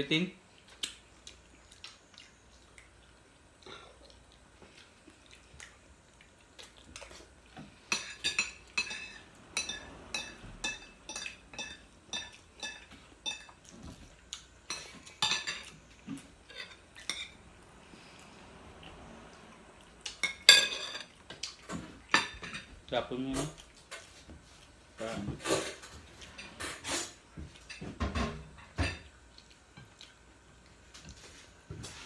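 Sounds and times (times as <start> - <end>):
cutlery clinking on plates: 7.9 - 13.6, 14.7 - 17.4, 20.2 - 21.1.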